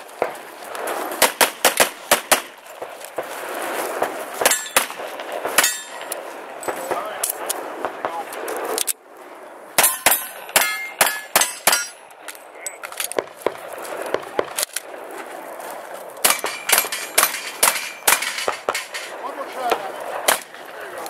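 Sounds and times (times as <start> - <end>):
pistol shots: 1.2 - 2.9, 9.8 - 12.0, 16.2 - 19.1, 19.7 - 20.8
steel plate ringing: 4.4 - 5.0, 5.6 - 6.1, 9.8 - 12.8, 16.3 - 19.2.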